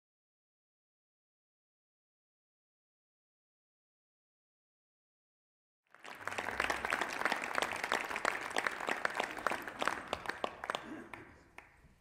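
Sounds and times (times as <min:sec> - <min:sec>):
audience applauding: 0:05.9 - 0:12.0.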